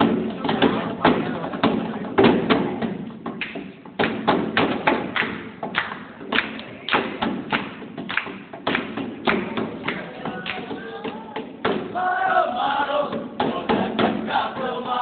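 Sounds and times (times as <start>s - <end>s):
hand drumming: 0.0s - 12.0s.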